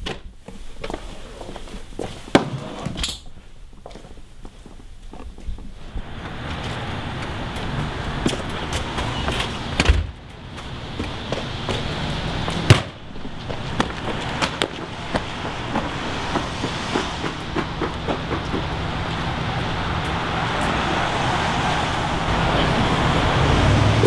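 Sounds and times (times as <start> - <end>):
steady outdoor hiss: 0.0 - 24.0
footsteps on wet asphalt: 10.3 - 21.3.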